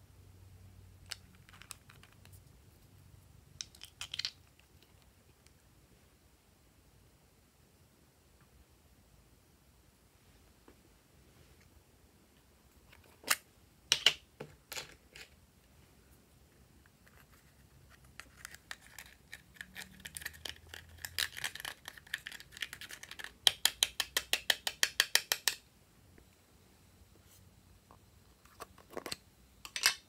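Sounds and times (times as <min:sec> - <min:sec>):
stick scraping makeup powder: 0:17.0 - 0:23.4.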